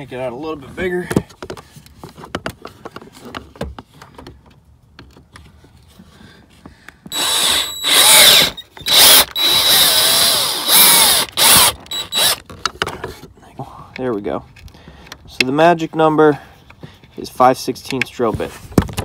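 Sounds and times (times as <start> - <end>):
cordless drill boring plastic: 7.1 - 12.5.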